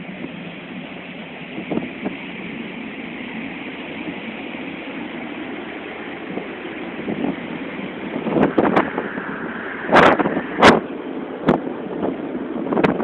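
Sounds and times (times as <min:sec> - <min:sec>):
churning sea: 0:00.0 - 0:13.0
wind buffeting microphone: 0:01.4 - 0:02.8, 0:03.4 - 0:13.0
wind rushing: 0:06.1 - 0:13.0.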